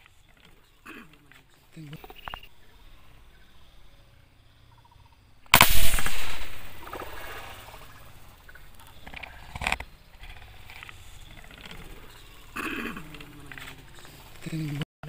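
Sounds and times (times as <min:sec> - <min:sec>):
loud splash at water surface: 0:05.6 - 0:08.3.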